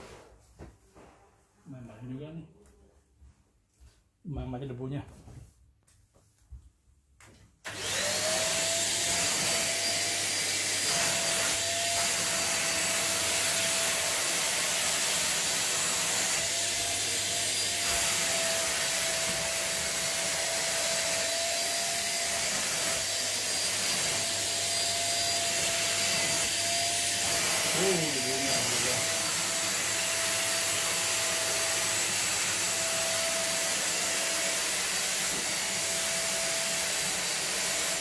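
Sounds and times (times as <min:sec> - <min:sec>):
vacuum cleaner motor whining: 0:07.7 - 0:38.0.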